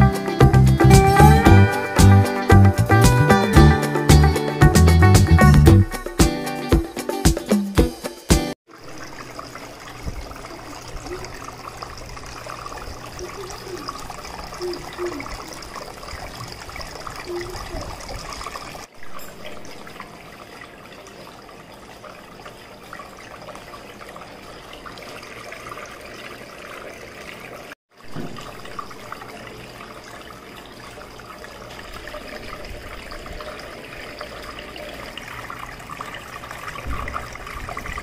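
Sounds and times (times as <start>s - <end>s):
fountain water trickling: 8.7s - 38.0s.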